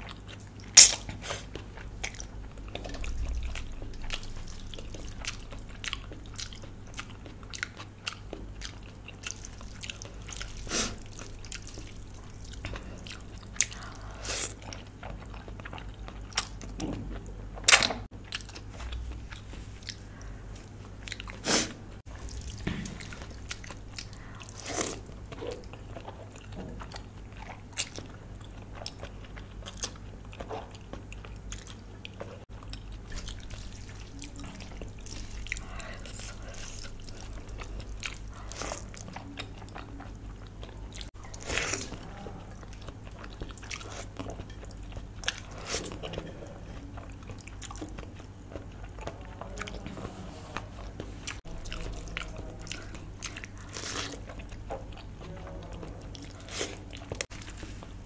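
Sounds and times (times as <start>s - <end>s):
person chewing and biting: 0.0s - 21.5s, 22.1s - 50.0s, 50.6s - 58.0s
wet mouth clicks and smacks: 0.8s - 1.1s.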